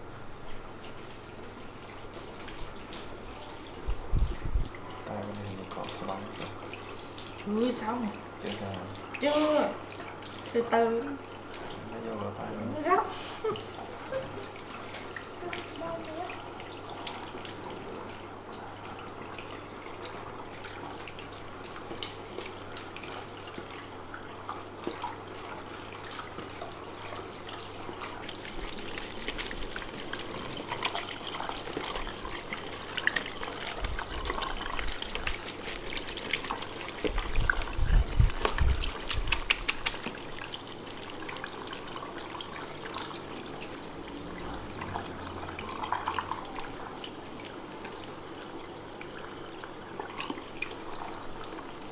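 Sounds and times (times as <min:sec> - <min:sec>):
shower sprayer water splashing: 0:00.0 - 0:51.9
fingers rubbing wet hair: 0:38.2 - 0:40.3.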